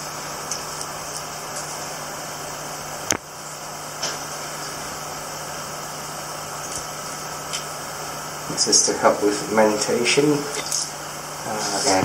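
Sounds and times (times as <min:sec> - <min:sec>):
steady mechanical hum: 0:00.0 - 0:12.0
even hiss: 0:03.5 - 0:12.0.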